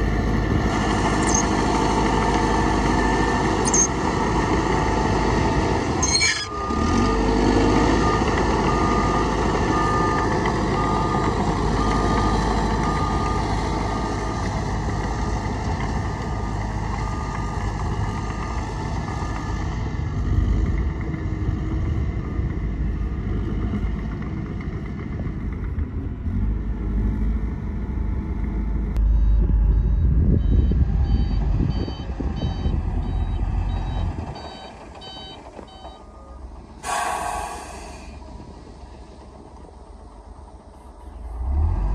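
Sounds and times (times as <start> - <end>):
diesel machinery running: 0.0 - 41.9
back-up alarm beeping: 1.2 - 1.6, 3.1 - 4.0, 29.0 - 36.4
higher-pitched back-up beeper: 1.2 - 1.6, 3.6 - 4.0, 29.0 - 36.4.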